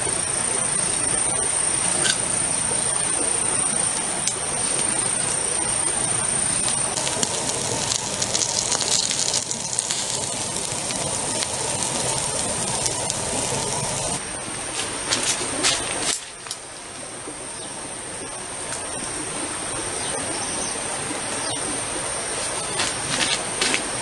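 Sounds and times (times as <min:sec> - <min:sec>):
high insect drone: 0:00.0 - 0:14.7
steady rushing hiss: 0:00.0 - 0:24.0
campfire crackling and popping: 0:00.6 - 0:14.2.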